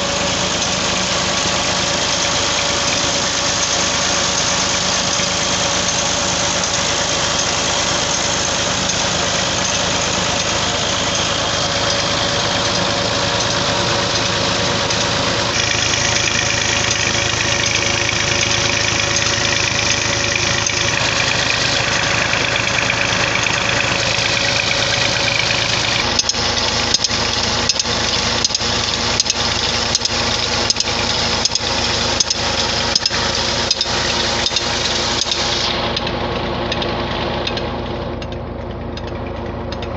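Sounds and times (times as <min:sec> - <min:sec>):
diesel engine running: 0:00.0 - 0:39.9
sharp clicks: 0:25.8 - 0:36.1.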